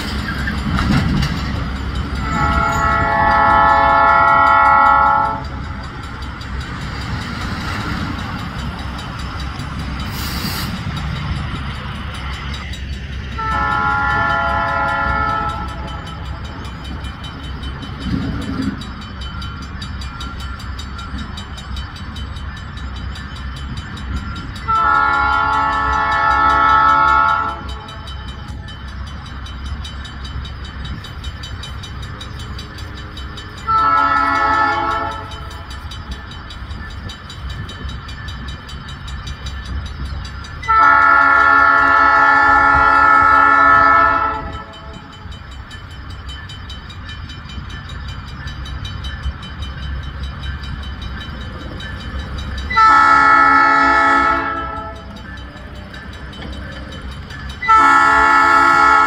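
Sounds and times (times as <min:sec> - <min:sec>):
low rumble of railcar: 0:00.0 - 0:59.0
train air horn blasts: 0:02.2 - 0:05.5, 0:13.4 - 0:15.9, 0:24.7 - 0:27.7, 0:33.7 - 0:35.4, 0:40.7 - 0:44.8, 0:52.7 - 0:55.1, 0:57.6 - 0:59.0.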